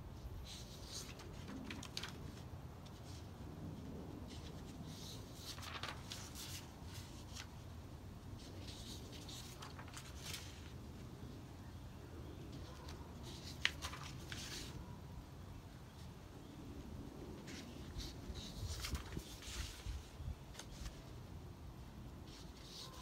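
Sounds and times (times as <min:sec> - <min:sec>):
paper cards rustling: 0:00.5 - 0:07.7, 0:08.3 - 0:10.8, 0:12.4 - 0:15.0, 0:17.4 - 0:21.1.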